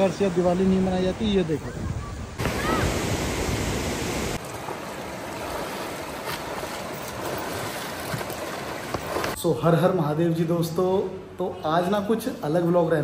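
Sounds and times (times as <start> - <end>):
fast river rushing: 0.0 - 9.4.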